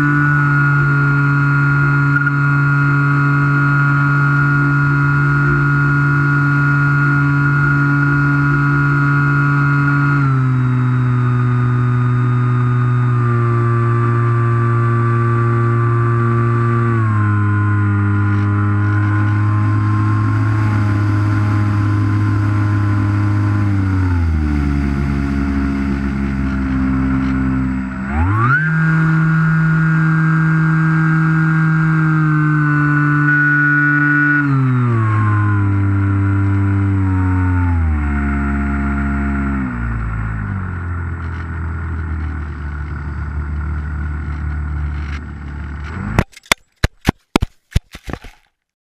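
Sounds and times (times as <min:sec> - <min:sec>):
model plane motor whining: 0:00.0 - 0:46.5.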